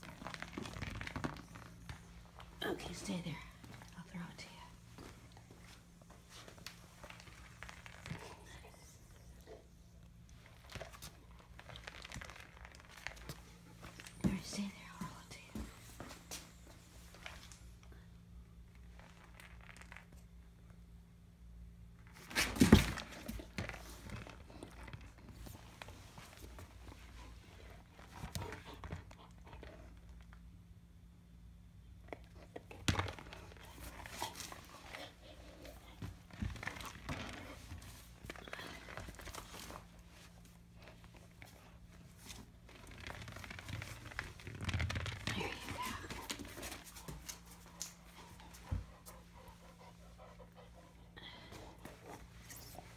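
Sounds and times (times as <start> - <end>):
soft rustles and clicks: 32.1 - 50.7.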